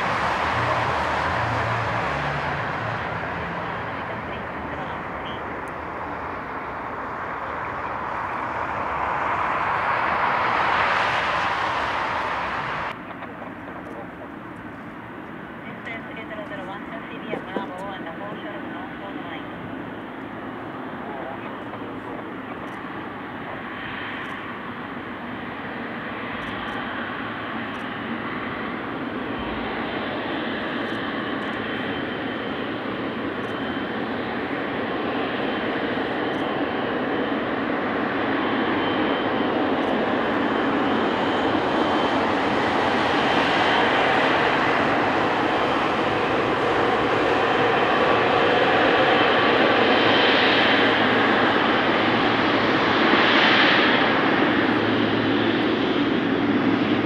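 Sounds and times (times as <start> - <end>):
jet engines roaring: 0.0 - 57.0.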